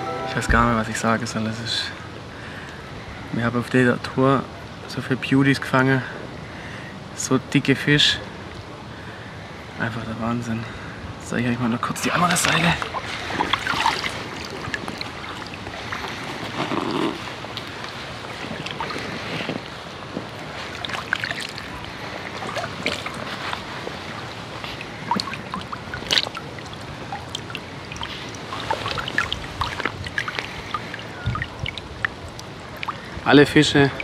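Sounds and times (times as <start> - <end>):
water sloshing and splashing: 12.2 - 34.0
water drips: 12.4 - 16.6, 17.4 - 34.0.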